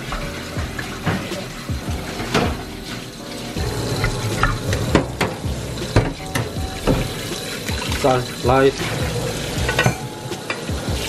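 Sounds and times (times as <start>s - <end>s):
tap water running into pot: 0.0s - 11.0s
pot knocking against steel sink: 3.6s - 11.0s.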